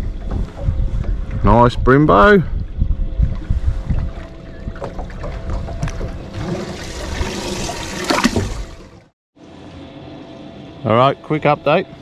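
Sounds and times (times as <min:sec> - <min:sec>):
wind rumbling on microphone: 0:00.0 - 0:08.9
water sloshing: 0:03.2 - 0:09.1.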